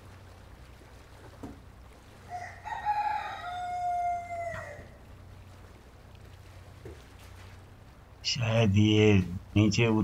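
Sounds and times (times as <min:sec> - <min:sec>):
rooster crowing: 0:02.2 - 0:05.0.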